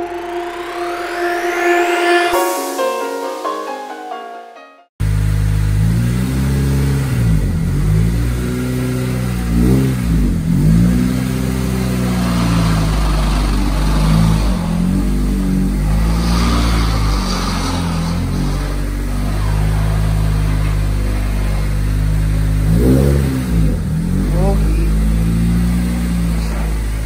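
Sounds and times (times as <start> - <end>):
car engine revving: 5.0 - 27.0.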